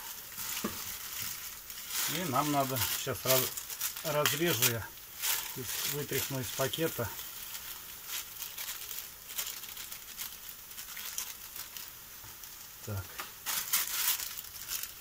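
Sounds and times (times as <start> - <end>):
faint sizzle in frying pan: 0.0 - 15.0
plastic bag crinkling: 0.0 - 15.0.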